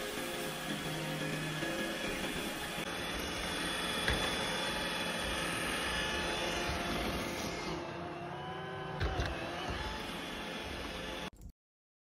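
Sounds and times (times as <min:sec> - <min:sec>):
robot vacuum whirring: 0:00.0 - 0:11.3.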